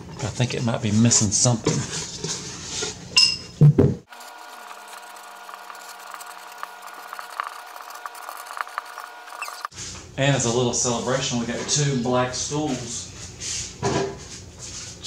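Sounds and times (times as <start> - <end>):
marker scratching on plywood: 4.1 - 9.7.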